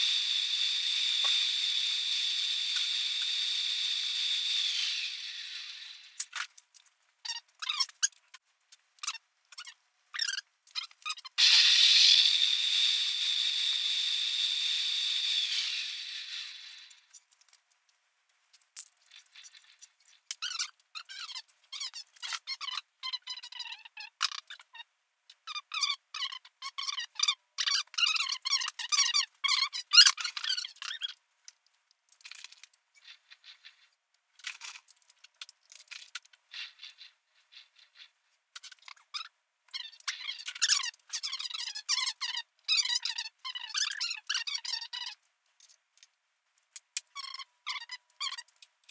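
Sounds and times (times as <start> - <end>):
metal lathe whining: 0.0 - 6.2, 11.4 - 17.0
metal parts clinking and rattling: 34.4 - 36.4.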